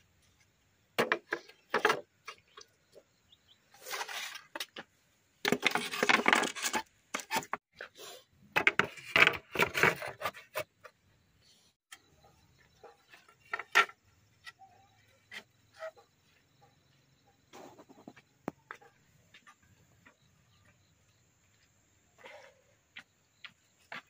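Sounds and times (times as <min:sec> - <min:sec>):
bamboo slats clattering: 0:05.4 - 0:07.6.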